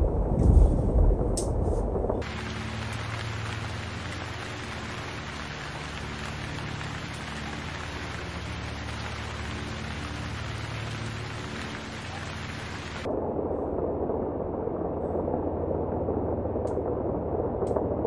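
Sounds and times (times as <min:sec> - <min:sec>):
steady rain: 0:02.2 - 0:13.1.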